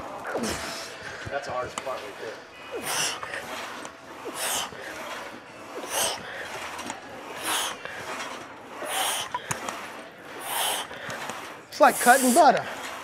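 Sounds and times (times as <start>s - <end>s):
man breathing hard: 8.8s - 11.3s.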